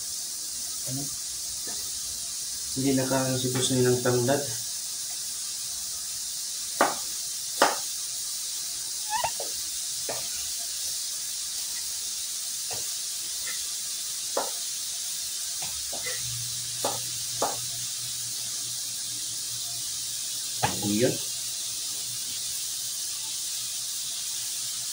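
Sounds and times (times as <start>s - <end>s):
steady high hiss: 0.0s - 24.9s
knife chopping on cutting board: 6.8s - 7.0s, 16.8s - 17.6s.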